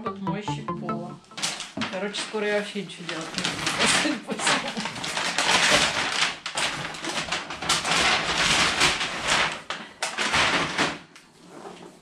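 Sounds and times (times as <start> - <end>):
paper bag rustling and crinkling: 3.0 - 11.0.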